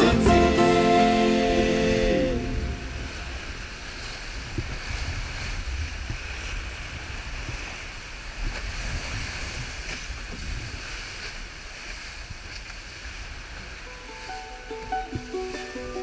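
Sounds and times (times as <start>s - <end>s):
water rushing along hulls: 0.0s - 16.0s
wind buffeting microphone: 2.6s - 13.8s.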